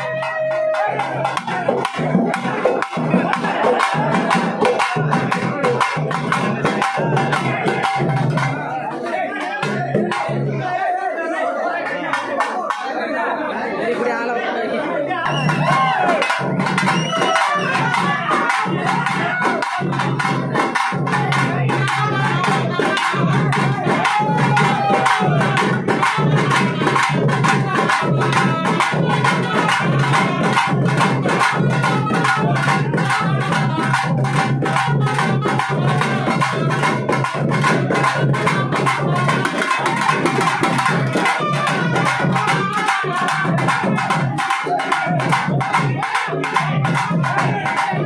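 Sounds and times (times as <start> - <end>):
fast drum strokes: 15.3 - 48.0.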